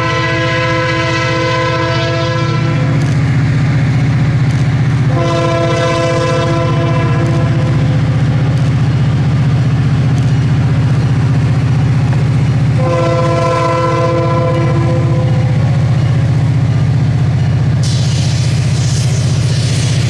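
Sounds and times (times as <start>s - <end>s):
locomotive air horn chord: 0.0s - 3.0s, 5.1s - 8.2s, 12.8s - 15.8s
diesel locomotive engine running: 0.0s - 20.0s.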